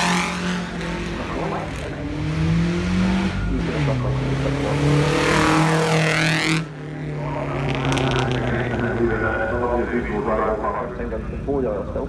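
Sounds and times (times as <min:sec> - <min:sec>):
car engine passing at speed: 0:00.0 - 0:11.0
faint engine: 0:00.0 - 0:12.0.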